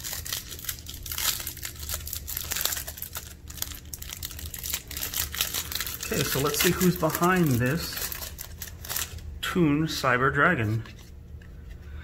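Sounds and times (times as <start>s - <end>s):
plastic wrapper crinkling and tearing: 0.0s - 9.3s.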